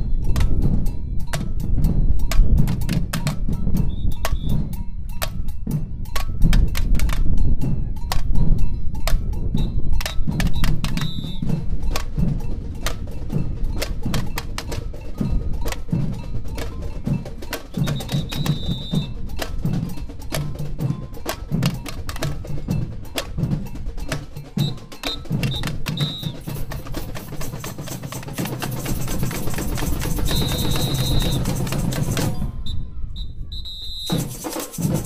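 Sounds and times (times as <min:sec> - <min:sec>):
samba percussion band: 0:00.0 - 0:35.0
high steady whistle: 0:03.8 - 0:04.6, 0:09.6 - 0:11.5, 0:17.8 - 0:19.2, 0:24.6 - 0:26.8, 0:30.0 - 0:34.4.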